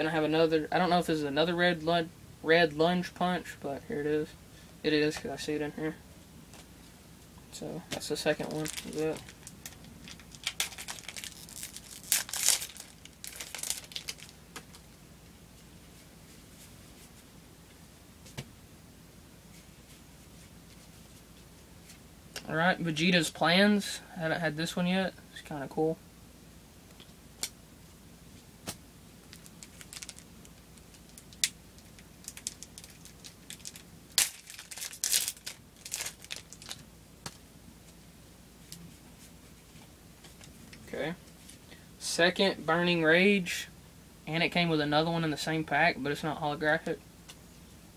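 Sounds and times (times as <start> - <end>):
plastic wrapper tearing and crinkling: 8.4 - 14.8, 29.3 - 36.8.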